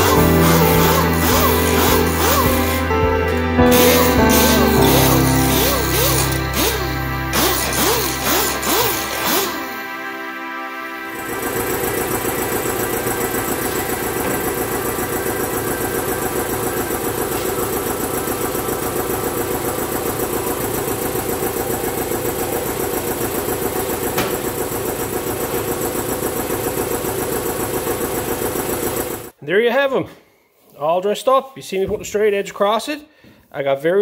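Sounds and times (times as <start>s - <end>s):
motor running with fast pulse: 0.0s - 2.9s, 3.7s - 9.8s, 11.2s - 29.3s.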